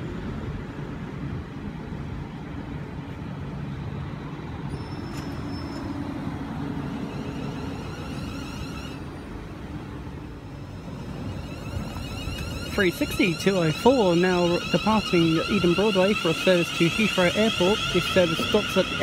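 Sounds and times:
electric train rumble and hum: 0:00.0 - 0:19.0
brief high tone: 0:11.1 - 0:17.0.

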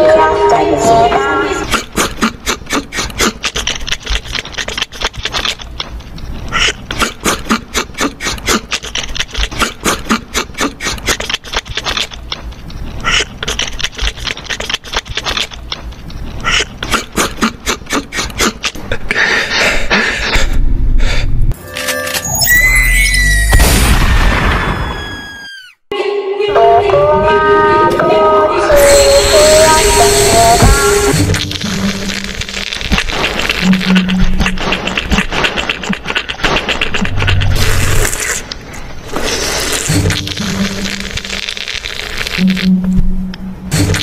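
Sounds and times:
hamster crunching dry food: 0:31.4 - 0:38.4.

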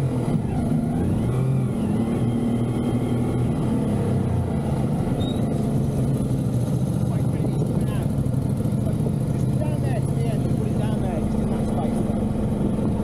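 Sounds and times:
motorcycle engine running: 0:04.4 - 0:13.0.

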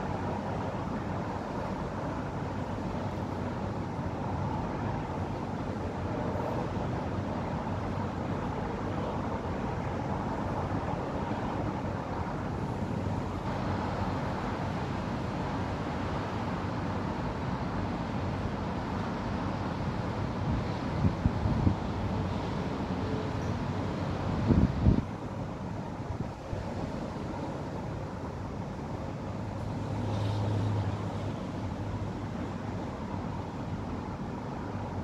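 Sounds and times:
distant road traffic: 0:00.0 - 0:35.0.

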